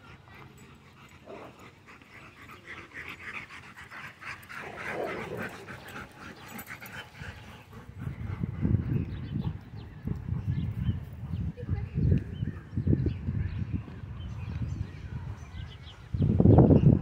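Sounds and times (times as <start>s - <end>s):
dog panting: 0.0s - 12.0s.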